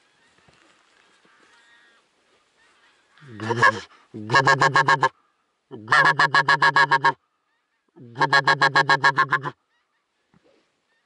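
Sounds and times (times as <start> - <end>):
goose honking: 3.2 - 5.1, 5.7 - 7.2, 8.0 - 9.6.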